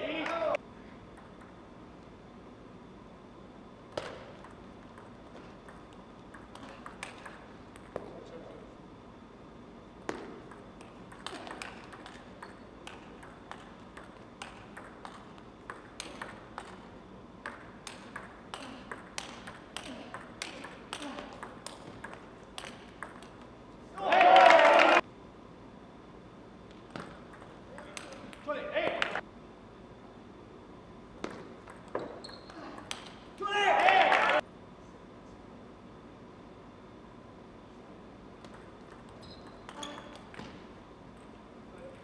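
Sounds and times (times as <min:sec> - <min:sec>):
table tennis ball hits: 0:03.9 - 0:08.2, 0:10.0 - 0:23.5, 0:26.9 - 0:29.2, 0:31.2 - 0:33.4, 0:38.4 - 0:40.7.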